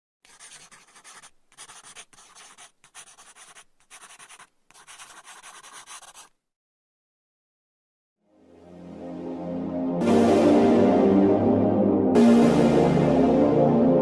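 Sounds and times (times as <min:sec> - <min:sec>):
pencil scratching on paper: 0:00.2 - 0:06.4.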